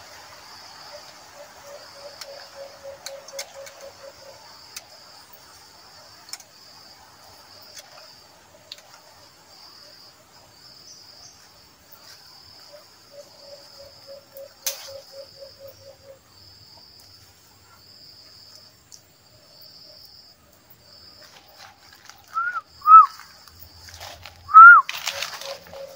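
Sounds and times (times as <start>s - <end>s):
insects buzzing: 0.0s - 25.9s
loud short chirps: 22.4s - 23.2s, 24.5s - 24.9s.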